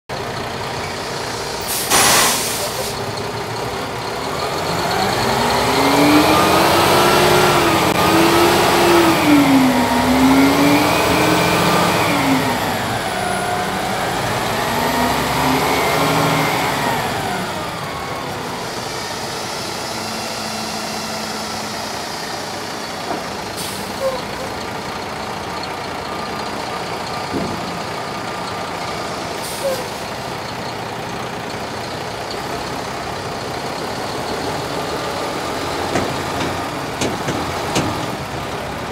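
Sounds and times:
diesel truck engine revving: 0.1 - 38.9
air hiss: 1.3 - 3.0.

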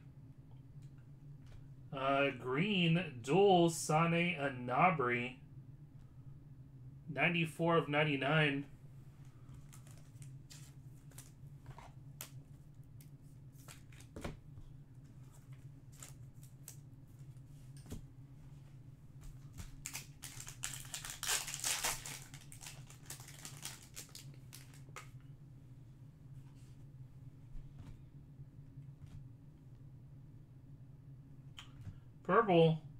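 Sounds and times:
steady low hum: 0.0 - 32.9
foil wrapper crinkling: 19.7 - 25.1.

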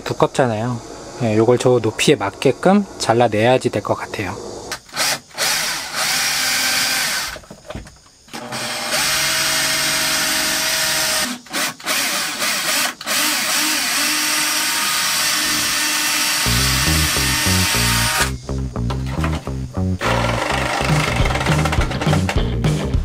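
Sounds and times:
cordless drill drilling: 4.8 - 7.4, 8.3 - 18.3, 20.0 - 21.7.

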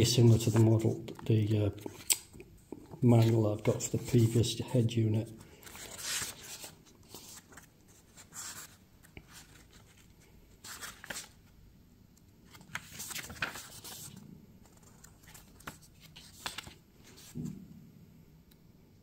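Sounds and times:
paper pages turning: 0.3 - 2.3, 3.0 - 4.4, 5.4 - 11.5, 12.4 - 17.5.

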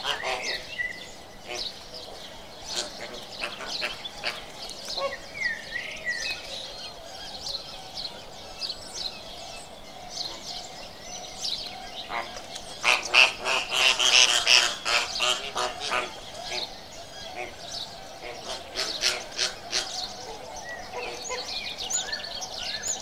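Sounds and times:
flamingos honking and chattering: 0.0 - 8.8, 11.7 - 23.0.

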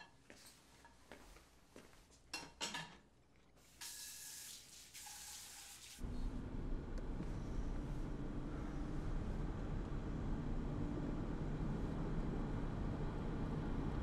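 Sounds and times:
kitchen tap running: 3.6 - 6.0
road noise inside car: 6.0 - 14.0.

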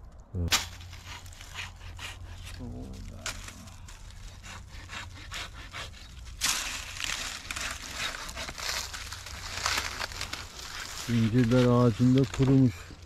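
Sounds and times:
hand saw rasping through wood: 4.3 - 10.0.

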